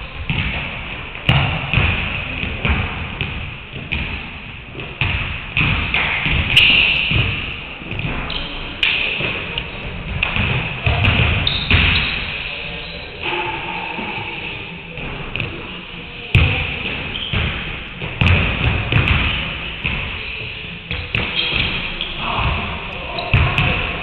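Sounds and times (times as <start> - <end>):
basketballs bouncing on wooden floor: 0.2 - 12.2, 16.3 - 20.2, 20.9 - 24.0.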